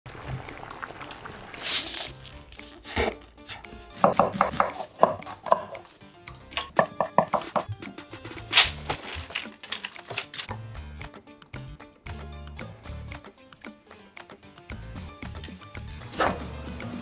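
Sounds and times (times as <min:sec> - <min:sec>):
bite into pizza crust: 0:01.5 - 0:04.0
knife chopping on cutting board: 0:03.0 - 0:05.9, 0:06.6 - 0:07.7
kitchen clatter: 0:06.5 - 0:07.8, 0:08.5 - 0:10.5.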